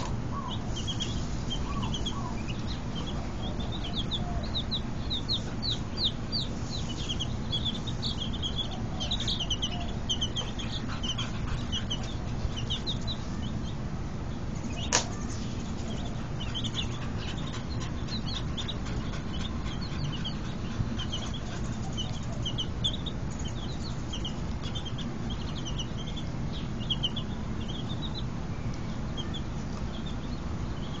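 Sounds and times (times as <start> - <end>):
baby chicks peeping: 0.0 - 31.0
low background noise: 0.0 - 31.0
sharp click: 14.9 - 15.2.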